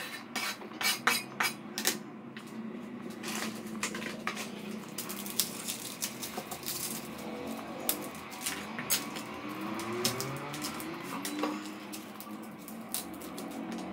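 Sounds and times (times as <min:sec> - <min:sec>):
kitchen utensils clattering on counter: 0:00.0 - 0:02.0.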